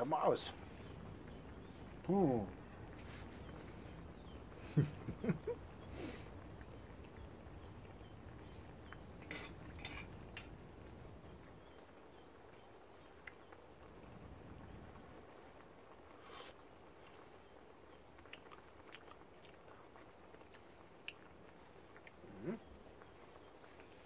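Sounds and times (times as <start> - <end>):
faint outdoor background: 0.0 - 24.0
low vocal sounds: 22.2 - 22.7.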